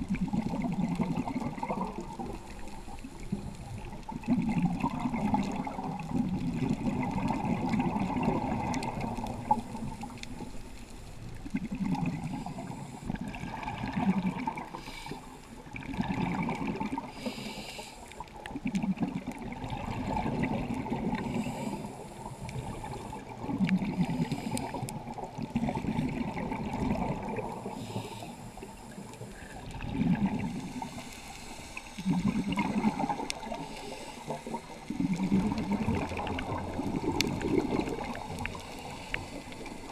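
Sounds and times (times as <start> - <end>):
exhaled bubbles gurgling underwater: 0.0 - 39.9
regulator breath hiss: 17.1 - 18.2, 21.2 - 23.1, 24.0 - 24.9, 27.6 - 29.6, 30.5 - 32.5, 33.5 - 35.0.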